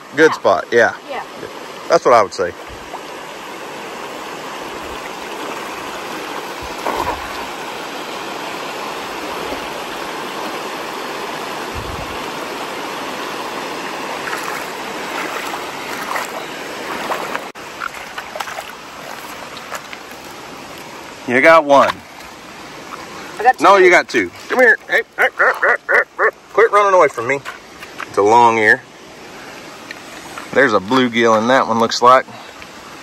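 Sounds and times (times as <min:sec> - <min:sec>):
creek water spilling over weir: 0:00.0 - 0:33.0
splashes and knocks: 0:04.8 - 0:07.7, 0:14.2 - 0:21.0
net slapping onto water: 0:06.6 - 0:07.5.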